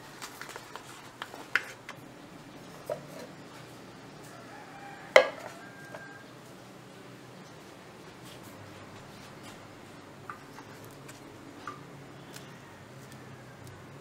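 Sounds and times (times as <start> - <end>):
hands rustling coffee bag: 0.0 - 1.9.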